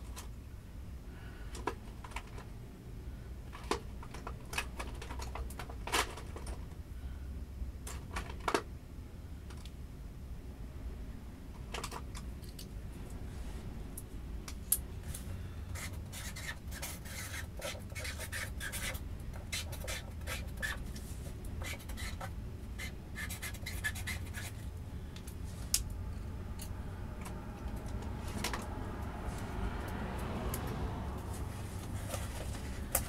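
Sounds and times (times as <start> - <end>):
scratchy clicks and rubbing: 15.8 - 24.7.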